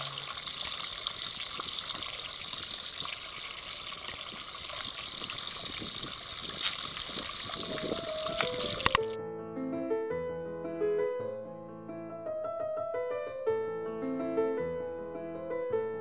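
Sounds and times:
water trickling in channel: 0:00.0 - 0:09.2.

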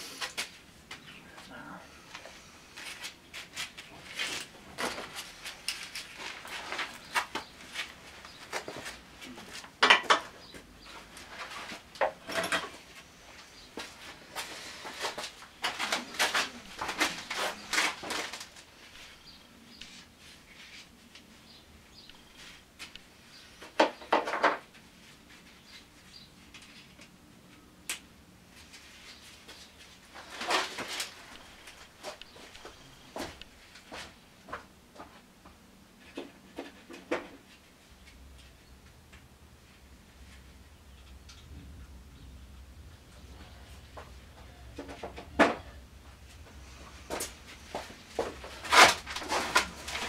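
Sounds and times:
tools knocking clinking and scraping: 0:09.8 - 0:10.6, 0:11.4 - 0:12.8.

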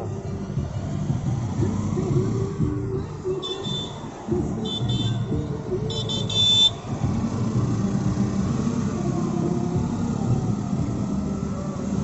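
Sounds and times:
car engine and road noise: 0:00.0 - 0:12.0
vehicle horn beeps: 0:03.3 - 0:04.0, 0:04.6 - 0:05.3, 0:05.9 - 0:06.8.

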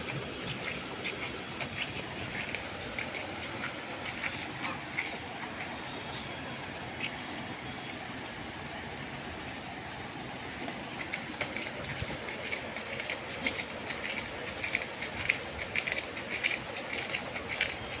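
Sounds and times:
dog licking wetly: 0:11.0 - 0:18.0.

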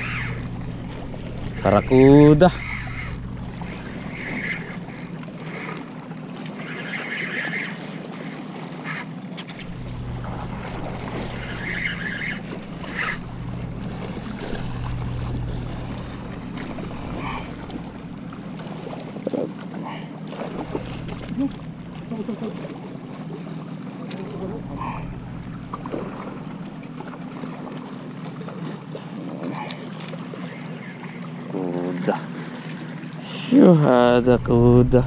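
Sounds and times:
fishing reel being cranked: 0:00.0 - 0:18.4, 0:24.0 - 0:26.0
steady low hum: 0:00.0 - 0:35.0.

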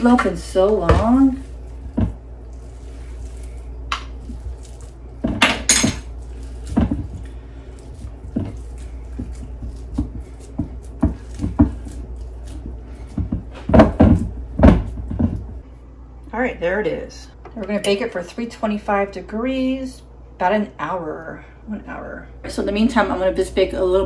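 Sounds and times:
hands patting meat: 0:00.0 - 0:15.6.

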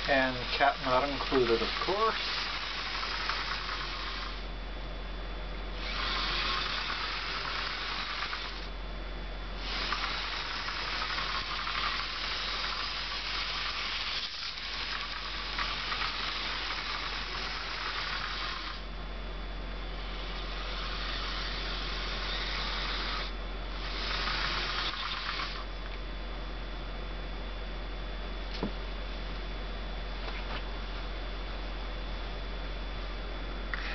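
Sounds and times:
model train motor whirring: 0:00.0 - 0:04.4, 0:05.8 - 0:08.7, 0:09.6 - 0:18.8, 0:20.0 - 0:25.7
steady low hum: 0:00.0 - 0:33.9.

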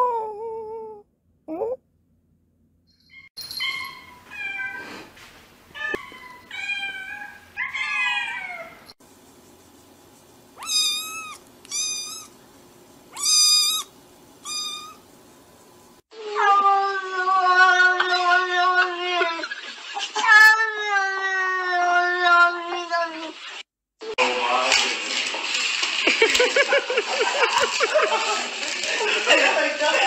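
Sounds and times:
cats meowing: 0:03.6 - 0:05.1, 0:05.8 - 0:09.0, 0:10.6 - 0:12.4, 0:13.2 - 0:15.0, 0:20.2 - 0:23.3.

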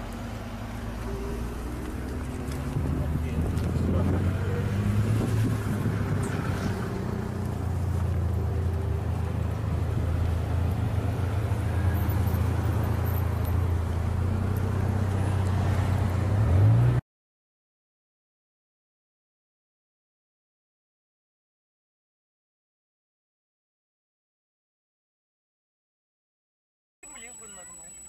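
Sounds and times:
car engine and road noise: 0:00.0 - 0:17.0.

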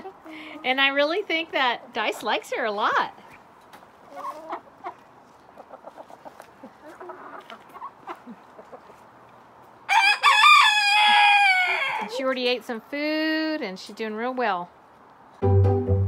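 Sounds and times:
chickens clucking: 0:00.0 - 0:01.0, 0:01.6 - 0:09.8
rooster crowing: 0:09.9 - 0:12.1.

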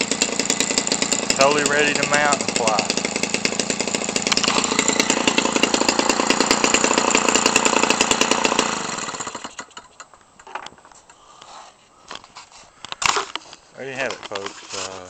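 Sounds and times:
model airplane engine running: 0:00.0 - 0:09.8
propeller spinning down: 0:00.0 - 0:09.8.

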